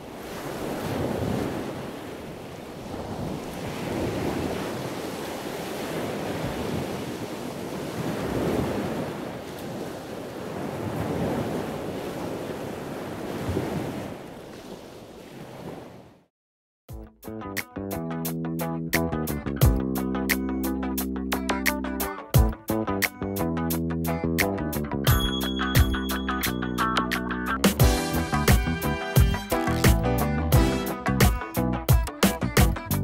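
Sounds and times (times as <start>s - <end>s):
ocean waves washing in and out: 0.0s - 16.3s.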